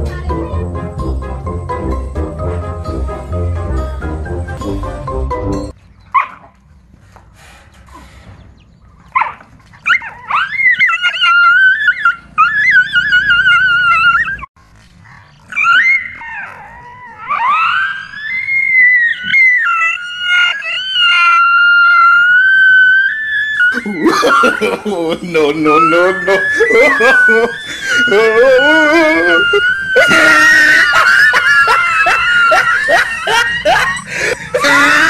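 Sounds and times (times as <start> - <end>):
dog whining and howling: 9.2 - 14.5, 15.5 - 24.7, 25.5 - 35.0.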